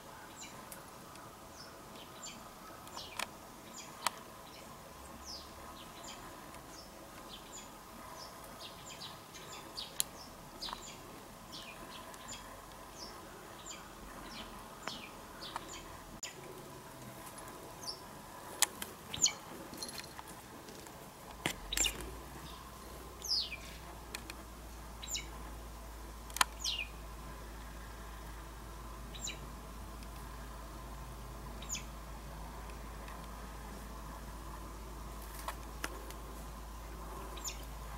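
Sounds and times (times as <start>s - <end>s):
bird chirping: 0.1s - 16.4s, 17.8s - 18.1s, 19.1s - 20.2s, 21.6s - 23.8s, 25.0s - 25.4s, 26.4s - 27.1s, 29.0s - 29.5s, 31.5s - 32.0s, 36.8s - 37.7s
sharp clicks: 26.2s - 26.8s.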